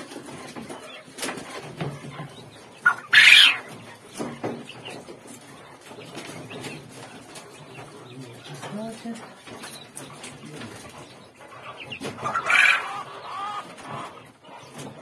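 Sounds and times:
quail squawk: 2.8s - 3.8s, 11.5s - 14.9s.

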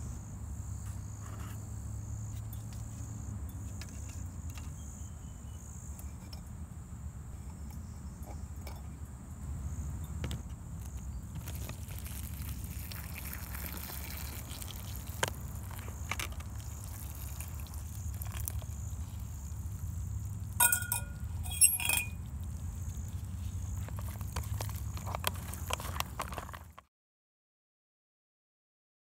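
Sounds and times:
sharp metallic clinks: 20.6s - 22.2s.

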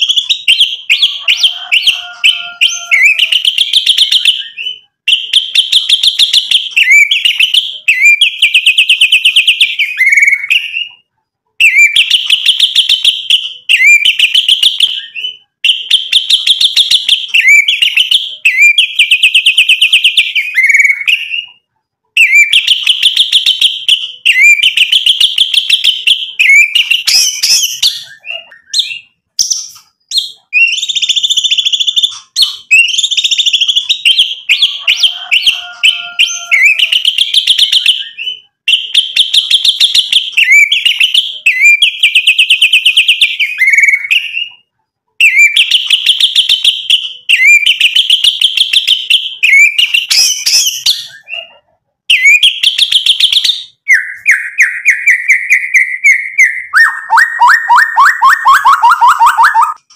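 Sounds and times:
bird singing trills: 0.0s - 21.6s, 22.2s - 44.6s.

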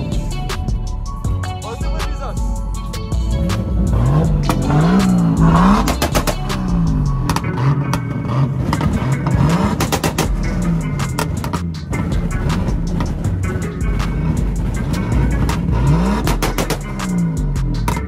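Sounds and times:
car engine revving: 2.5s - 18.0s.

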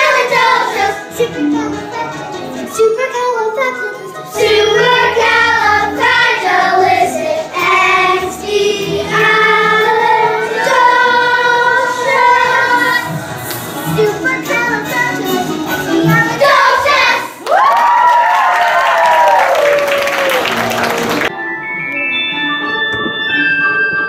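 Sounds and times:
children singing together: 0.0s - 2.2s, 4.3s - 17.4s
instrumental accompaniment: 0.0s - 17.2s, 20.2s - 24.0s.

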